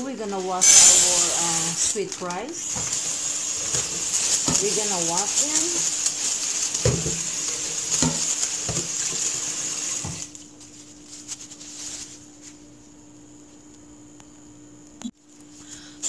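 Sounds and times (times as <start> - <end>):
faint steady hum: 0.0 - 16.0
tap water running into pot: 0.6 - 10.4.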